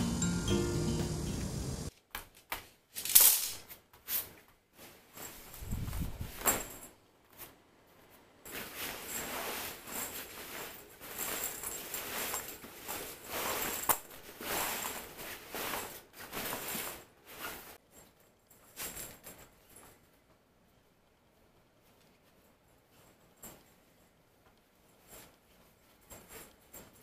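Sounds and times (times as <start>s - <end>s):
tent fabric rustling: 8.5s - 17.8s.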